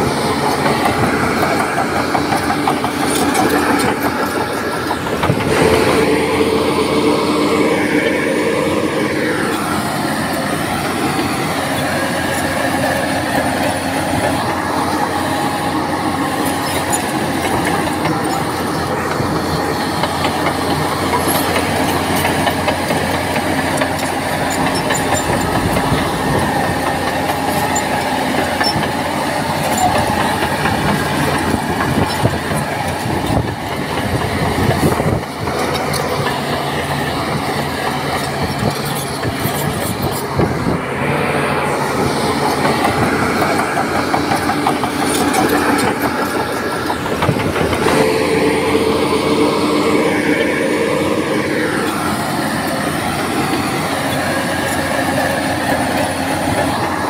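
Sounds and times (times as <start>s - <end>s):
bulldozer diesel engine: 0.0s - 57.0s
steel tracks clanking: 0.0s - 57.0s.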